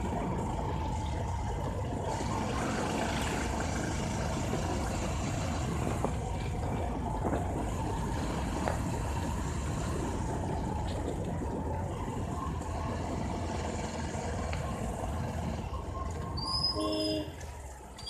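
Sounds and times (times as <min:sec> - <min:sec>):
wind and road noise: 0:00.0 - 0:18.0
brief pitched tone: 0:16.4 - 0:17.4.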